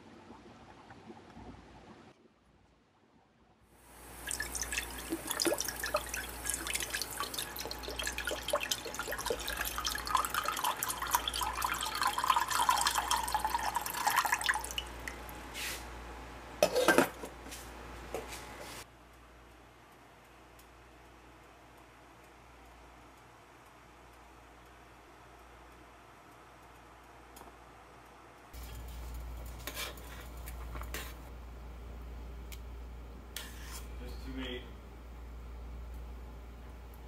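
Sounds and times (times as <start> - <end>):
liquid pouring into a pot: 4.1 - 15.2.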